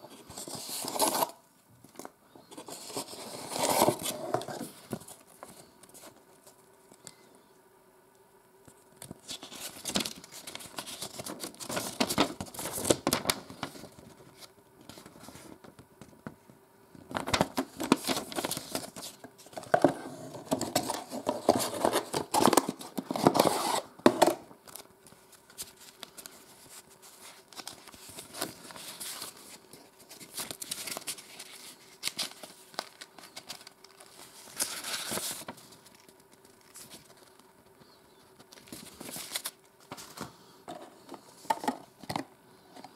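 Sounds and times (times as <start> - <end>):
paper and cardboard rustling: 9.0 - 15.7, 17.1 - 37.5, 38.2 - 41.8.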